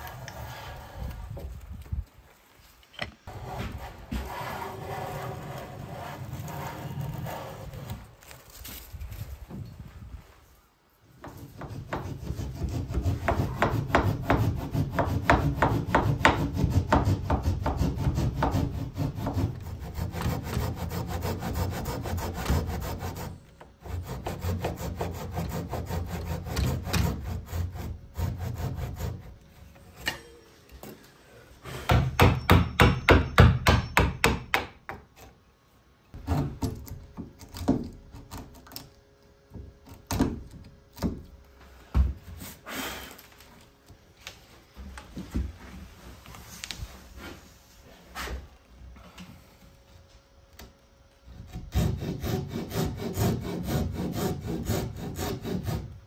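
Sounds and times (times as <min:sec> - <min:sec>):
hand tools cutting wood: 0:11.2 - 0:29.4, 0:51.3 - 0:55.9.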